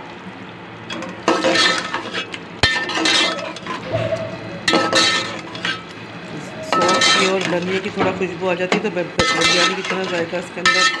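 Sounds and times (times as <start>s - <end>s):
spoon scraping metal pot: 1.2s - 5.9s, 6.6s - 7.9s.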